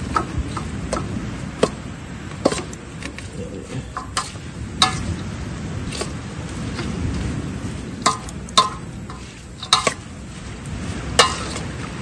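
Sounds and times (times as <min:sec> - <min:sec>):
utensils tapping cookware: 0:00.0 - 0:07.0, 0:08.0 - 0:12.0
steady low hiss: 0:00.0 - 0:12.0.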